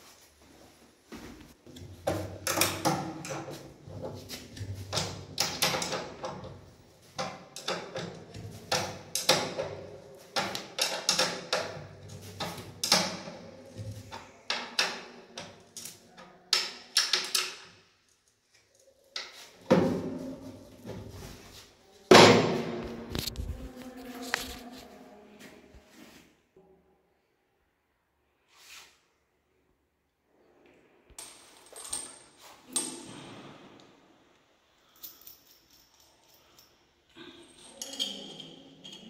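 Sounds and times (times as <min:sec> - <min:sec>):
hard objects knocking and clattering: 0:01.7 - 0:15.6.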